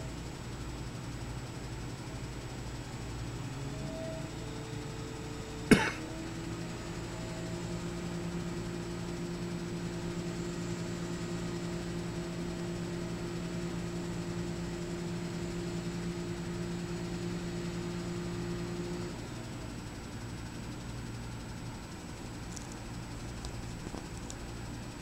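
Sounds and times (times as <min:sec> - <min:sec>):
heavy engine idling: 0:04.8 - 0:25.0.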